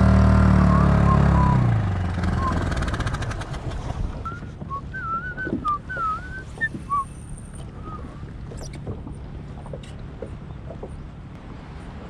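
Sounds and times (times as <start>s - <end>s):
low steady rumble: 0.0s - 12.0s
wavering whistled notes: 0.7s - 1.6s, 2.3s - 2.7s, 4.2s - 8.2s.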